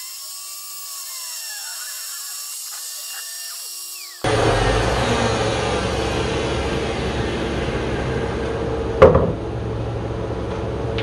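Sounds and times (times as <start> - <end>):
cnc router spindle winding down: 0.0 - 9.0
sharp knock: 9.0 - 9.4.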